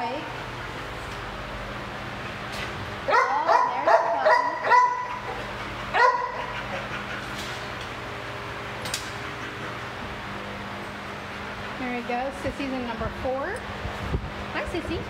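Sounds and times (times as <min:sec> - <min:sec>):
dog yipping barks: 0:03.1 - 0:05.4, 0:06.0 - 0:06.5.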